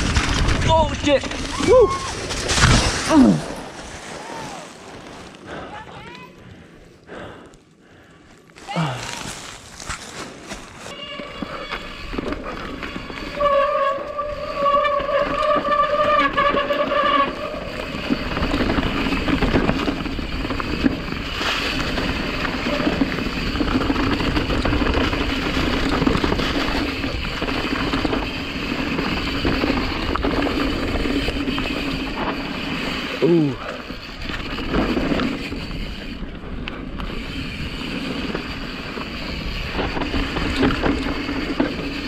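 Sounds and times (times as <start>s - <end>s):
bike rattling and knocking: 0.0s - 3.4s, 9.3s - 42.0s
tyre noise on dirt: 0.0s - 6.3s, 8.5s - 42.0s
bike hub freewheel buzz: 10.9s - 42.0s.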